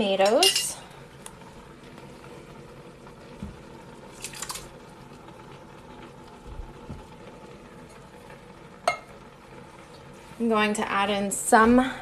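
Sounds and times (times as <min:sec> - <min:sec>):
tomatoes poured into a pot: 0:04.1 - 0:04.8.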